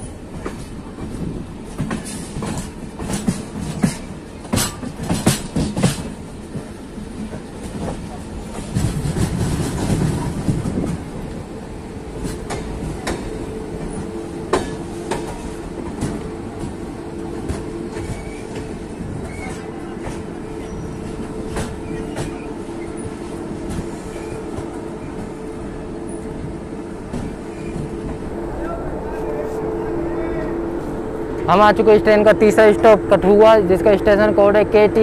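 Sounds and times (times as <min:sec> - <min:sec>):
train wheels clicking over rail joints: 0:00.0 - 0:11.4, 0:12.2 - 0:25.4
train rumble: 0:00.0 - 0:35.0.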